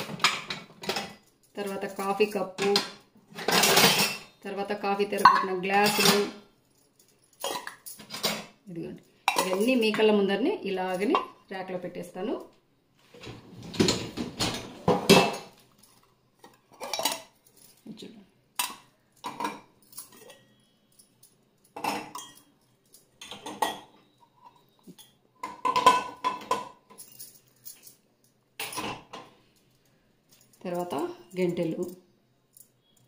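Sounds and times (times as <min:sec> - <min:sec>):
metal dishes clinking on a wire rack: 0:02.6 - 0:04.4, 0:05.2 - 0:06.4, 0:07.4 - 0:08.5, 0:16.4 - 0:17.4, 0:18.6 - 0:20.6, 0:21.8 - 0:22.5, 0:23.2 - 0:27.1, 0:28.6 - 0:29.3.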